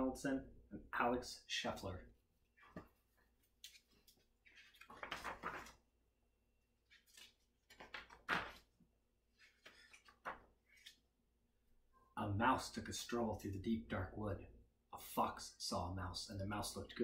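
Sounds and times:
book pages turning: 2.6 - 5.8, 6.8 - 11.1.

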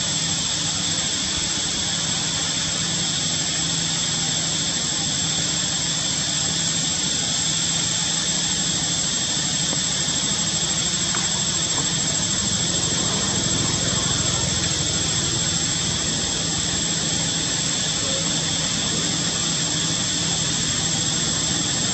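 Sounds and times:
high constant whine: 0.0 - 21.9
low engine-like hum: 8.8 - 21.9.

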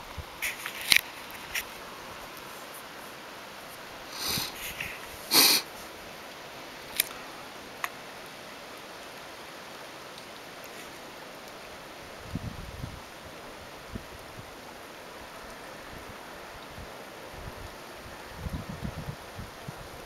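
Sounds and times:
heavy rain hissing: 0.0 - 20.0
short hissing bursts: 4.1 - 5.9.

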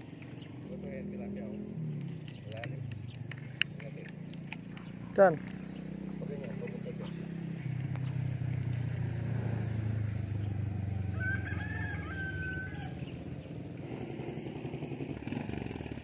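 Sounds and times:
rooster crowing: 11.0 - 13.2.

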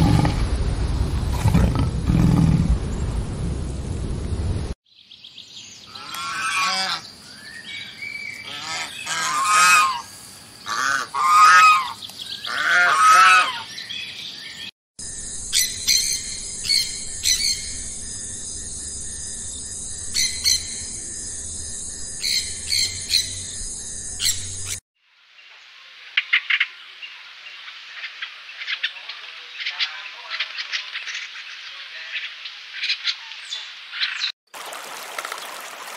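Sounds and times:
bird chirps: 13.6 - 24.8.

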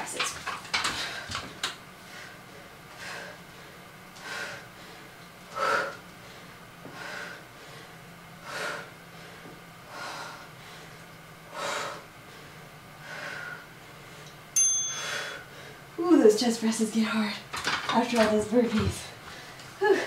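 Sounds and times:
woman breathing hard: 2.0 - 14.3, 14.9 - 15.9, 19.2 - 20.0.

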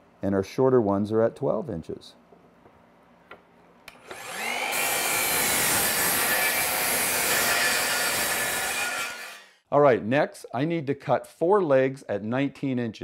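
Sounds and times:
miter saw motor whining: 3.9 - 9.6.

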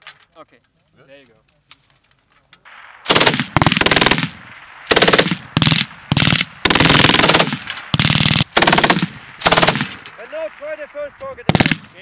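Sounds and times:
machine gun firing bursts: 3.0 - 10.2, 11.4 - 12.0.

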